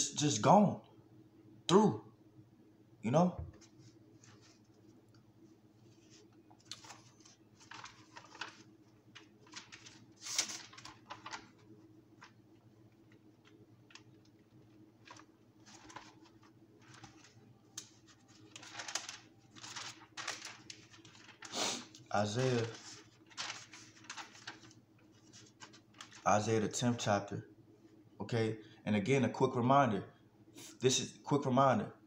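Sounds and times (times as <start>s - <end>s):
pages rustling: 3.6s - 5.0s, 5.8s - 26.3s.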